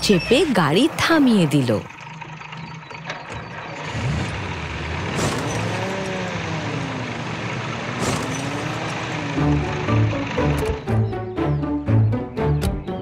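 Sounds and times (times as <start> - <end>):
cartoon truck engine revving: 0.0 - 12.6.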